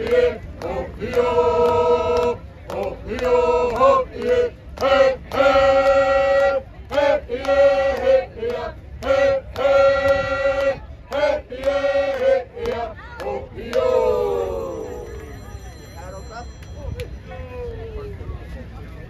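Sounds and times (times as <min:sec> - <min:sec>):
group singing in unison: 0:00.0 - 0:14.8.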